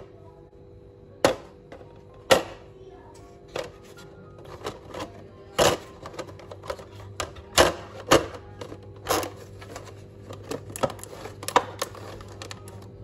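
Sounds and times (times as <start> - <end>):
aluminium foil crackling: 9.2 - 13.0.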